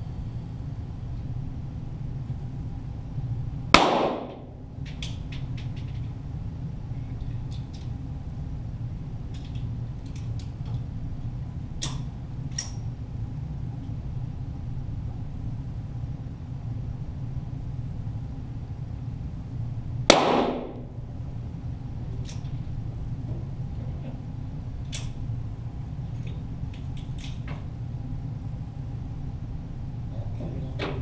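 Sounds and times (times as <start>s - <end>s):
steady low hum: 0.0s - 31.0s
loud gunshot crack with ringing: 3.8s - 4.4s, 20.1s - 20.8s
pistol shots cracking: 3.8s - 4.5s, 20.1s - 20.9s.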